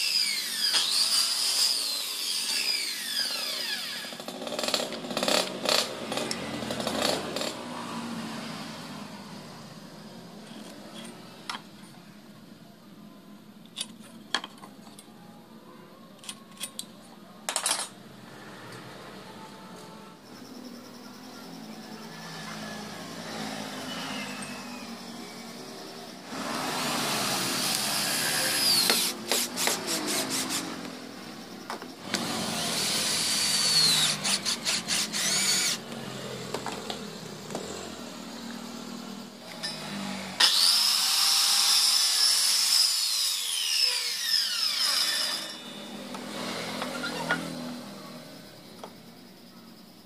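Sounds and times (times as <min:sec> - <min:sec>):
drill driving screws into wood: 0:00.0 - 0:07.6, 0:26.3 - 0:30.8, 0:32.0 - 0:35.8, 0:39.5 - 0:47.5
drill clutch clicking: 0:32.1 - 0:37.6, 0:39.5 - 0:42.6.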